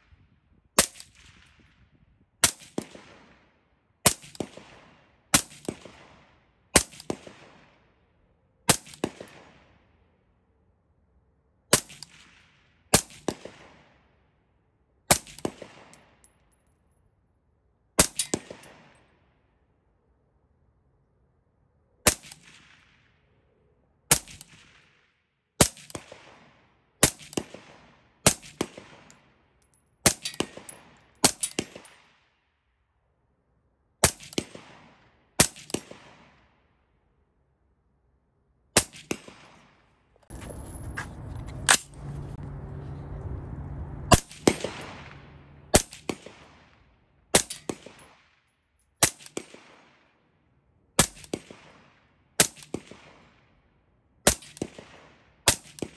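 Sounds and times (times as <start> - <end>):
steady low rumbling noise: 40.3 - 47.0
suppressed rifle shots: 44.1 - 48.4.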